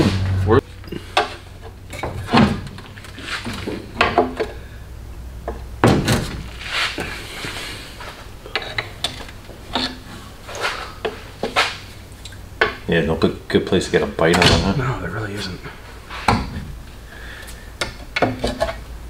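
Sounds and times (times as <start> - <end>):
metal clunks and scrapes: 0.0 - 4.6, 5.5 - 11.8, 15.6 - 16.8, 17.8 - 18.8.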